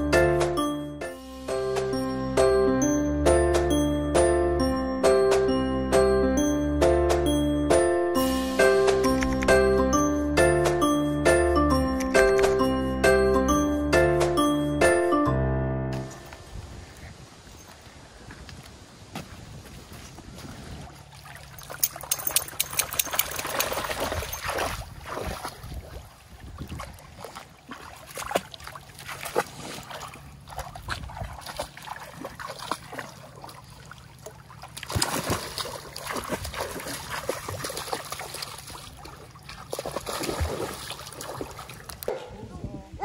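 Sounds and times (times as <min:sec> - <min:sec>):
water sloshing around rocks: 0:19.7 - 0:42.1
dog splashing in water: 0:20.8 - 0:42.1.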